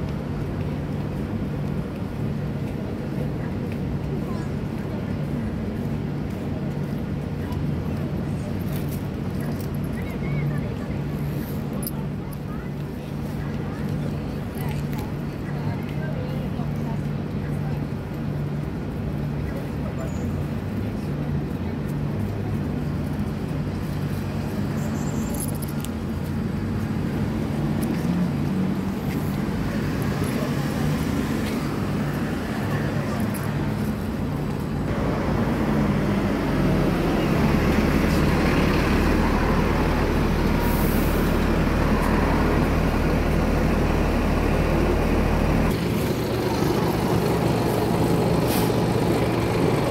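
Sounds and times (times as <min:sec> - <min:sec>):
road traffic: 0:00.0 - 0:49.9
bus engine idling: 0:31.9 - 0:49.9.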